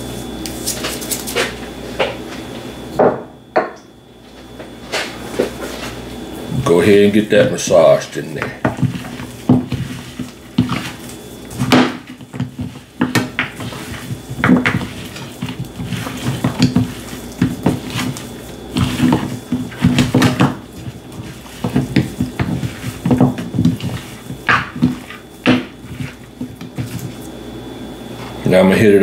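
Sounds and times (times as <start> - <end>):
steady low hum: 0.0 - 29.0.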